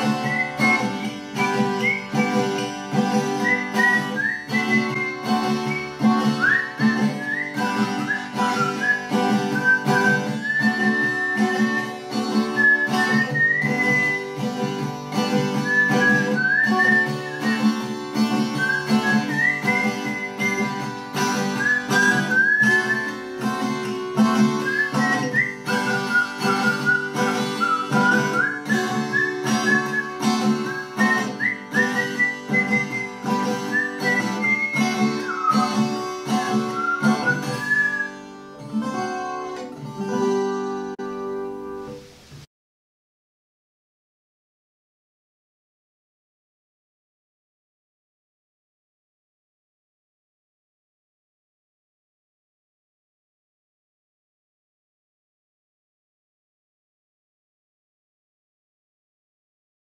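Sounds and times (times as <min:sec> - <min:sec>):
whistled melody: 0:00.0 - 0:39.6
strummed acoustic guitar: 0:00.0 - 0:42.5.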